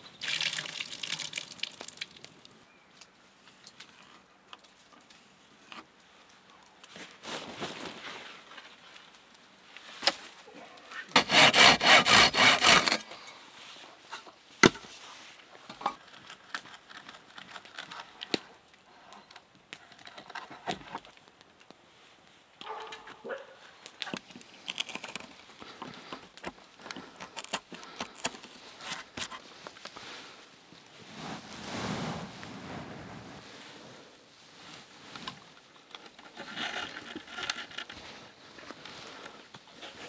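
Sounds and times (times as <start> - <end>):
hand saw cutting wood: 11.1 - 13.1.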